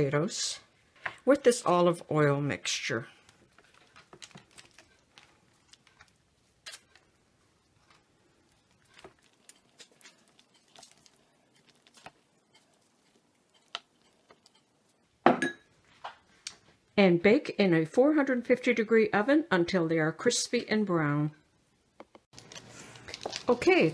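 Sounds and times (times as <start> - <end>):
basting brush dabbing potatoes: 1.2 - 15.3.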